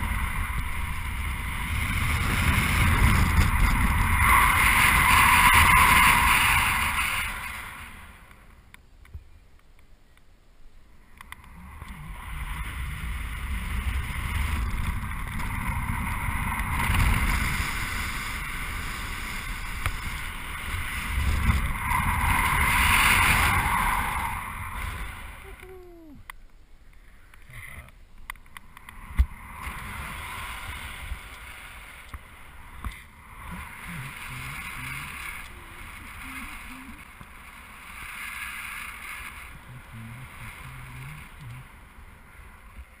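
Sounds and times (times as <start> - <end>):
wind rushing over microphone: 0.0 - 8.5, 11.4 - 26.2.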